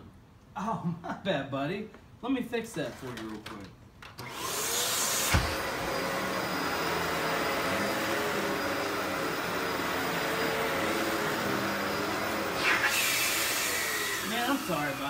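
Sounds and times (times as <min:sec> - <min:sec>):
vacuum cleaner on carpet: 0:04.2 - 0:15.0.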